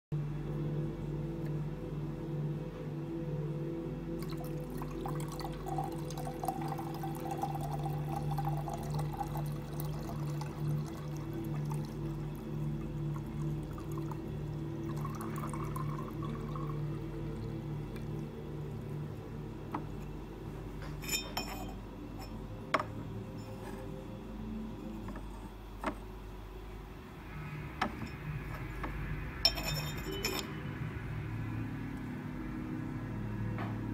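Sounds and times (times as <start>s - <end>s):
water pouring from teapot spout: 4.2s - 18.9s
teapot lid clinking: 21.0s - 22.9s, 29.4s - 30.5s.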